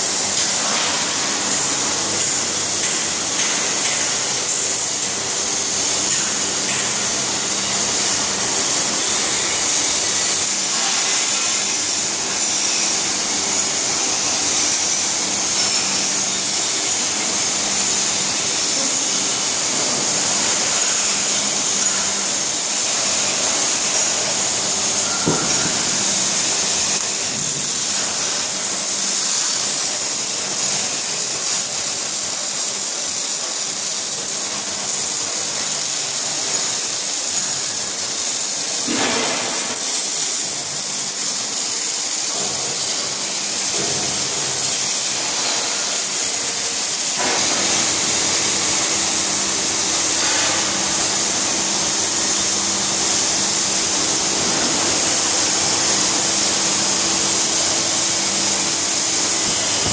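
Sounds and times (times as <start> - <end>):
machinery high hiss: 0.0 - 59.9.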